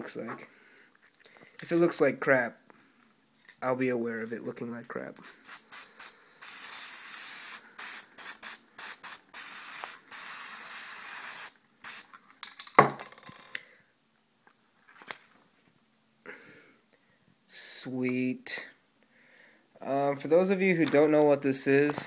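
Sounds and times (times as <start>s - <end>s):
aerosol spray can spraying: 5.2s - 12.1s.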